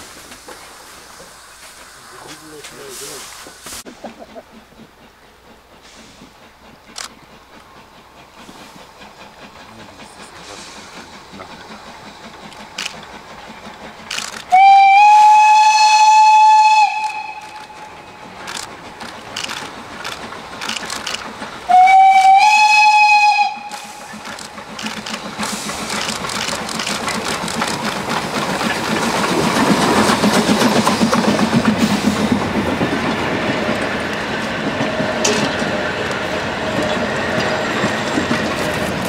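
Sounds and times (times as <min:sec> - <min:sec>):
steam locomotive chuffing: 0:00.0 - 0:39.0
train wheels clickety-clack: 0:00.0 - 0:39.0
steam whistle blast: 0:14.5 - 0:17.9, 0:21.7 - 0:24.2.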